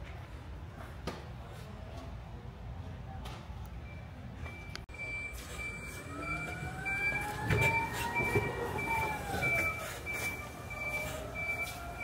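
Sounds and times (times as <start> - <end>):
electronic warning beeper: 3.9 - 12.0.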